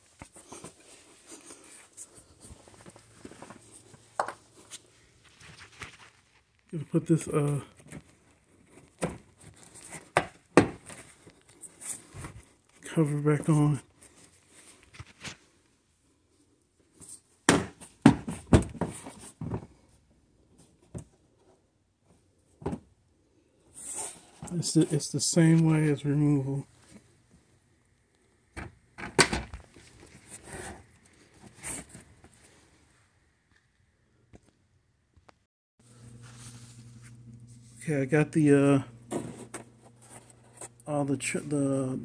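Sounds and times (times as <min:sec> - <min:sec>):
faint rubbing and handling noises: 0:00.0 - 0:22.6, 0:23.3 - 0:27.6, 0:29.7 - 0:33.2, 0:36.0 - 0:42.0.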